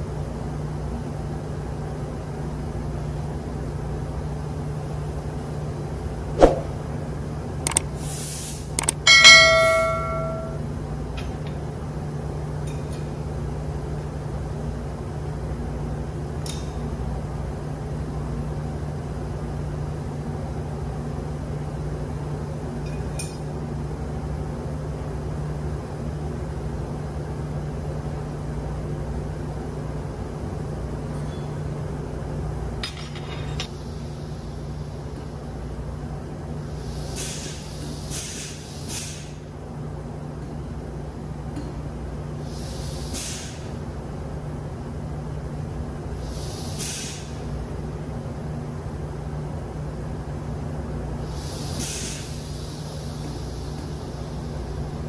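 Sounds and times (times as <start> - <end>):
machinery humming: 8.8 - 10.9
steel tool striking metal: 9.1 - 10.6.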